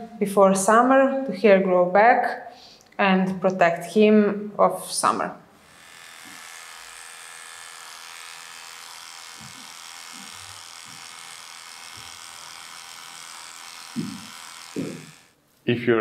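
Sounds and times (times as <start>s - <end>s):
electric clippers buzzing: 5.0s - 15.4s.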